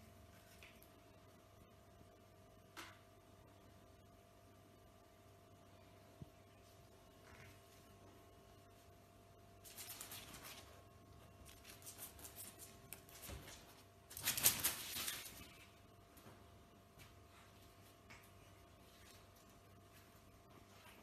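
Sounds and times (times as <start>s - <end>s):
cat scrabbling on hard floor: 11.8s - 15.6s.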